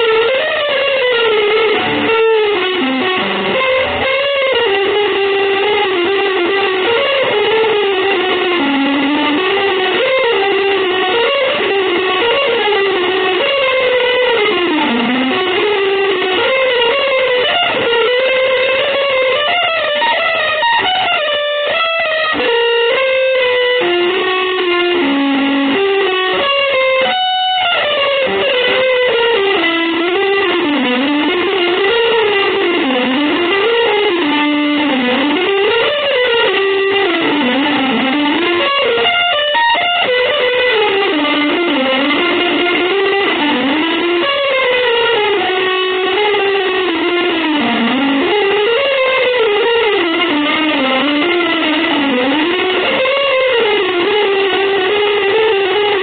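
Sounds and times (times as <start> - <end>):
fast melodic guitar lines: 0.0 - 56.0.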